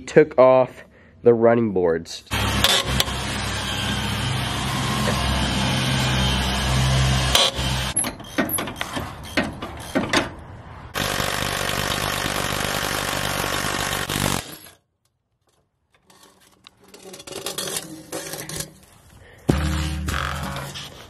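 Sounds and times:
metal clicks and clanks: 7.3 - 10.4, 14.4 - 19.0.

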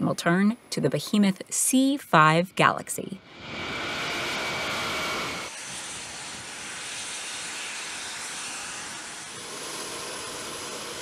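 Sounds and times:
jet engines roaring: 2.2 - 11.0
steady rushing hiss: 3.4 - 11.0.

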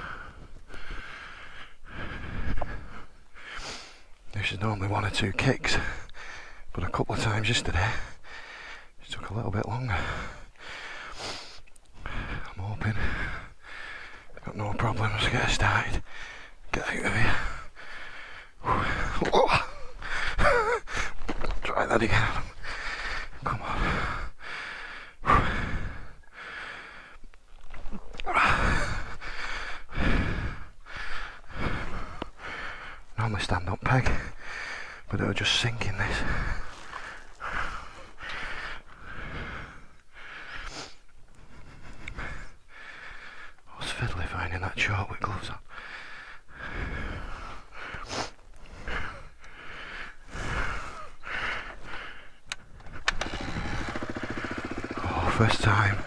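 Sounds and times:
man breathing hard: 0.0 - 9.0, 9.8 - 14.4, 15.4 - 27.3, 28.2 - 33.2, 34.0 - 43.7, 45.6 - 56.0
kick-start knocks: 53.0 - 55.6
motorcycle engine running: 53.0 - 56.0.

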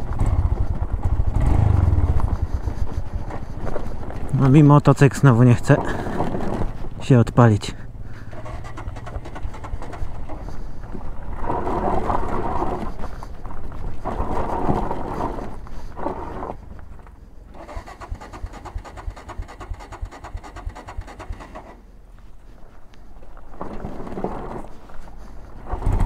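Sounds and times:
motorcycle engine revving: 0.0 - 3.4, 8.2 - 10.6, 11.2 - 13.0, 14.0 - 16.6, 17.5 - 21.8, 25.6 - 26.0
low thumps and rattles: 0.0 - 4.4, 8.2 - 16.6, 25.6 - 26.0.

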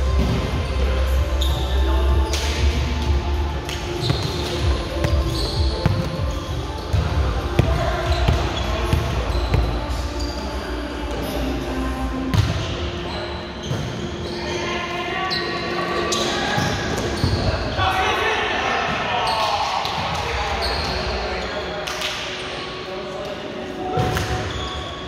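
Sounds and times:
echoing background voices: 0.0 - 24.1
sneakers squeaking on court: 0.1 - 3.1, 3.7 - 14.7, 15.3 - 17.8, 20.6 - 21.1, 23.9 - 25.0
ball bouncing on court floor: 3.7 - 9.7.

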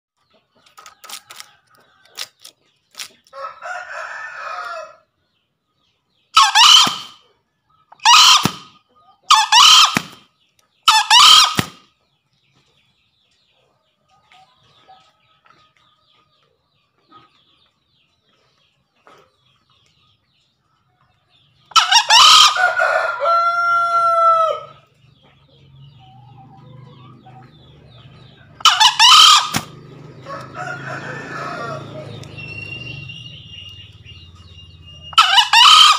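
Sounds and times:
junglefowl crowing: 3.4 - 5.0, 6.4 - 7.2, 7.9 - 10.2, 10.8 - 11.8, 21.7 - 24.8, 28.5 - 33.7, 34.8 - 35.9.

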